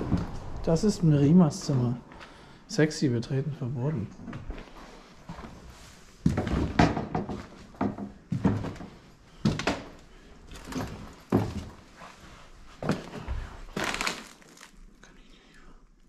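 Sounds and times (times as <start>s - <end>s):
door knocks and thuds: 6.3s - 8.6s.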